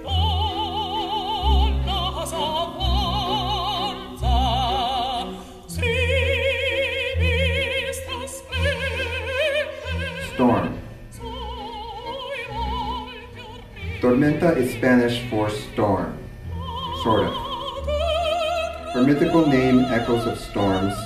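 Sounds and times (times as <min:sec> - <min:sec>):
operatic voice singing: 0:00.0 - 0:21.0.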